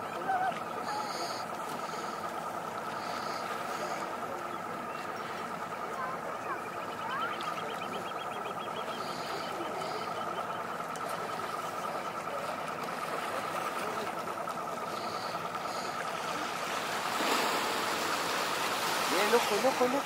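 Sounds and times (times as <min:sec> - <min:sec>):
boat engine idling with whine: 0:00.0 - 0:20.0
water hiss: 0:15.0 - 0:20.0.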